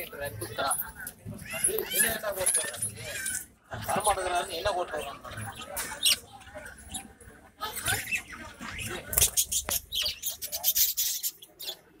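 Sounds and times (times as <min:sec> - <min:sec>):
budgerigars chattering: 0:05.2 - 0:11.9.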